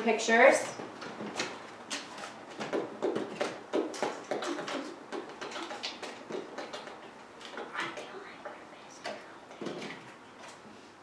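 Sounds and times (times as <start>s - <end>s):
cards clicking and tapping in tray: 1.0s - 8.1s.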